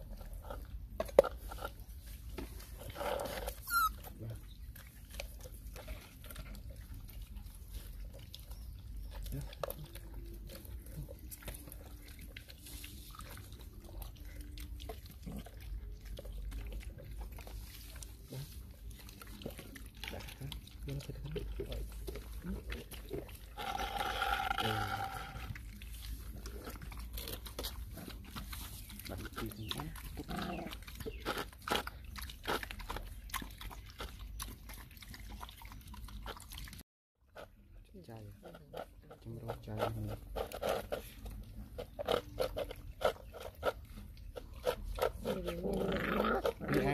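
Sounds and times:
puppies chewing food: 0:00.0 - 0:46.9.

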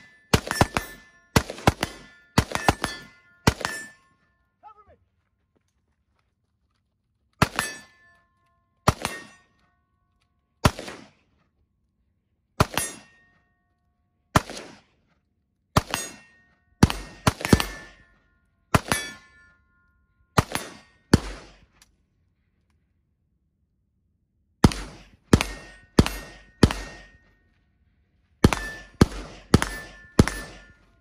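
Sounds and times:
steel target ringing: 0:00.0 - 0:04.3, 0:07.5 - 0:08.2, 0:18.8 - 0:19.9, 0:25.4 - 0:27.4, 0:28.4 - 0:31.0
rifle shots: 0:00.3 - 0:04.0, 0:07.4 - 0:07.9, 0:08.9 - 0:09.5, 0:10.6 - 0:11.3, 0:12.6 - 0:13.1, 0:14.3 - 0:15.0, 0:15.8 - 0:18.1, 0:18.7 - 0:19.2, 0:20.4 - 0:21.8, 0:24.6 - 0:27.3, 0:28.4 - 0:31.0.

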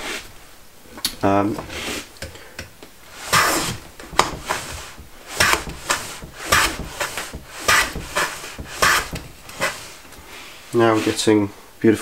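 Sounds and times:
hand plane shaving wood: 0:03.1 - 0:11.3.

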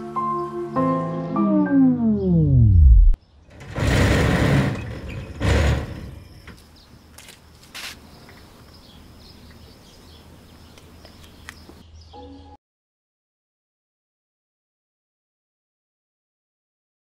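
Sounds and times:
metal gate rattling and scraping: 0:03.5 - 0:06.6.

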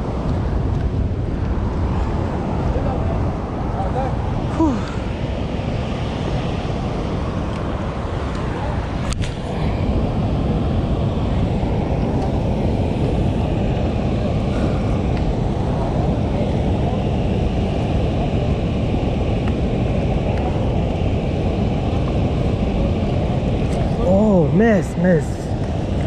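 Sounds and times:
water rushing through floodgates: 0:19.2 - 0:26.0.

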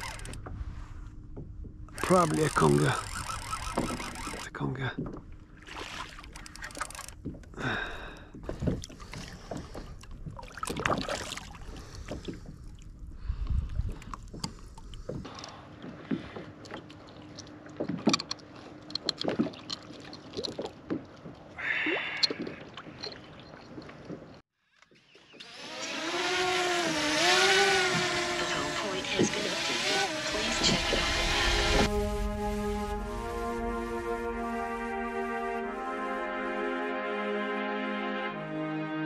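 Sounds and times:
gear knocking and rubbing on kayak: 0:00.0 - 0:05.3, 0:27.0 - 0:31.2.

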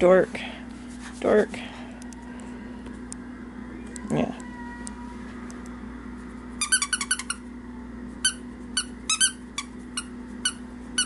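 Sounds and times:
squeaky toy squeaking: 0:06.6 - 0:07.4, 0:08.3 - 0:11.0.

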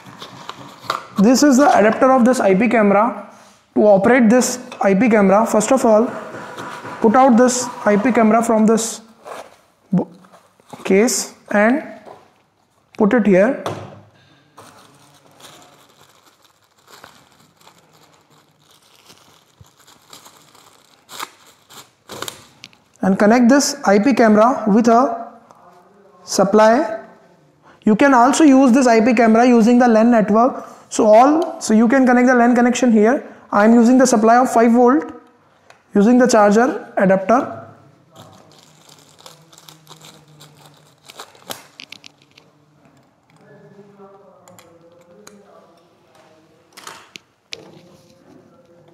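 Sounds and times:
packaging wrap rustling: 0:00.0 - 0:01.2, 0:14.6 - 0:22.9, 0:38.1 - 0:42.6.

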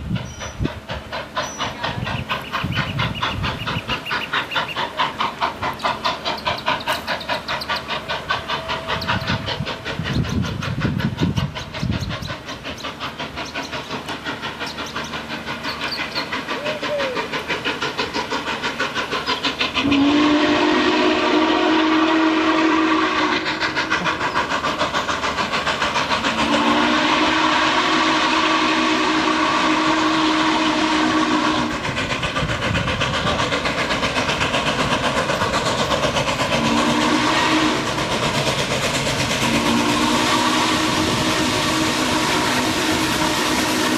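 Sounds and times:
steam locomotive exhaust beat: 0:00.0 - 0:43.9
steam whistle blasts: 0:19.8 - 0:23.9, 0:26.3 - 0:31.9, 0:36.5 - 0:38.2, 0:39.4 - 0:43.9.

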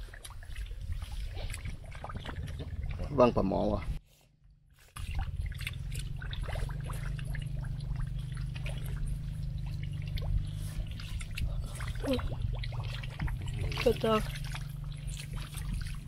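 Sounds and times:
wet mud squelching: 0:00.0 - 0:04.0, 0:04.7 - 0:16.0
steady low hum: 0:00.1 - 0:16.0
small wet clicks: 0:04.9 - 0:16.0
water trickling: 0:05.0 - 0:16.0.

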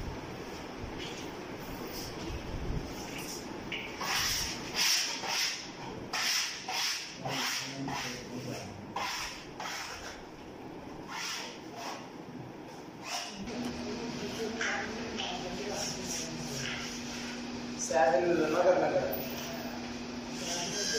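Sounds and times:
hand rubbing wallpaper: 0:15.5 - 0:17.4.

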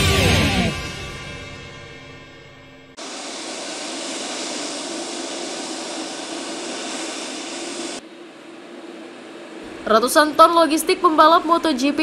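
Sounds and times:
jet engines taxiing: 0:02.9 - 0:12.0.

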